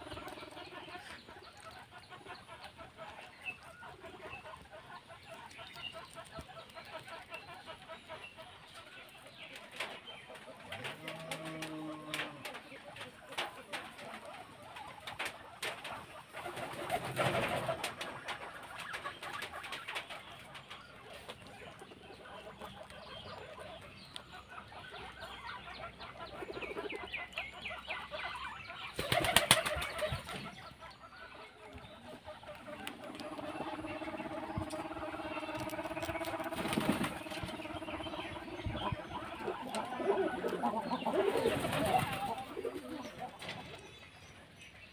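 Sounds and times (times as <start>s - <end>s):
pigeons cooing: 0.0s - 44.1s
wings flapping: 10.8s - 20.2s, 28.9s - 30.5s, 32.5s - 43.7s.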